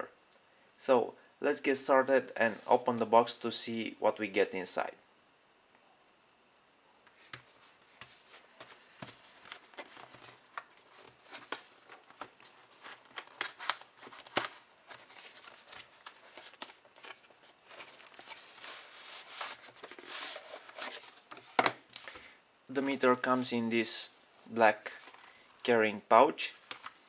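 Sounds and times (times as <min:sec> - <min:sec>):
cardboard packaging scraping and rustling: 0:07.5 - 0:21.6.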